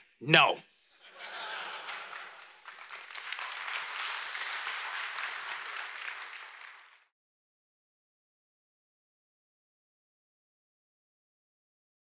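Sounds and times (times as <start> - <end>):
audience applauding: 1.1 - 7.1.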